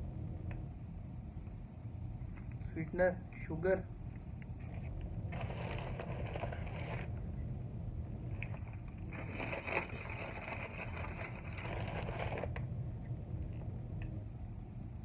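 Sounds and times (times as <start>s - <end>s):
steady low hum: 0.0s - 15.0s
food packaging crinkling: 5.4s - 7.1s, 8.4s - 12.6s.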